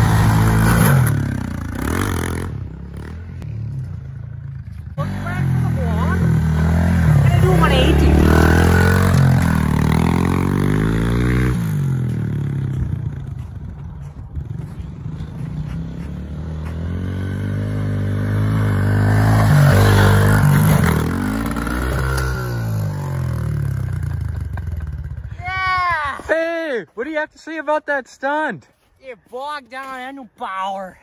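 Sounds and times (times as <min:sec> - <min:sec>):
pit bike engine revving: 0:00.0 - 0:03.8, 0:05.0 - 0:13.4, 0:14.4 - 0:25.4.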